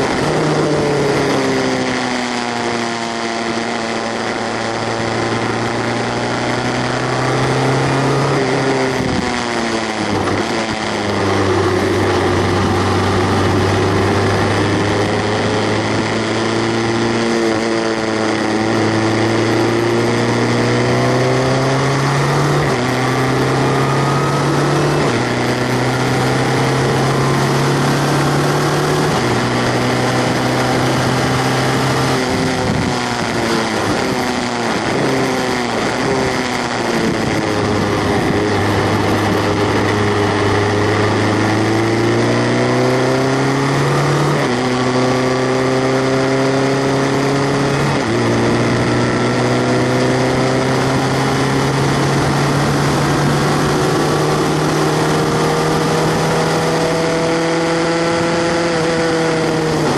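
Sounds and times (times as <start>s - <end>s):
race car engine accelerating: 0.0s - 59.9s
wind rush: 8.2s - 9.4s, 29.0s - 42.6s.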